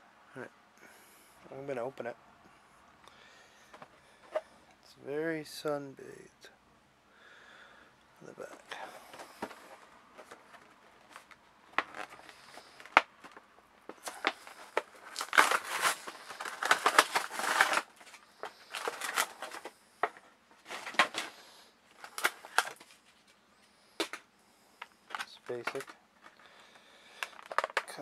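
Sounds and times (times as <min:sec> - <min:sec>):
plastic blister pack crackling: 0:08.4 - 0:23.3, 0:25.1 - 0:28.0.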